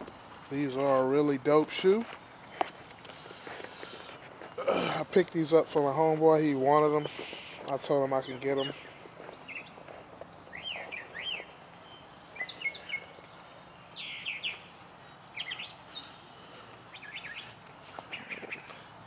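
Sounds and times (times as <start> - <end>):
faint outdoor background noise: 0.0 - 19.0
small birds chirping: 0.1 - 19.0.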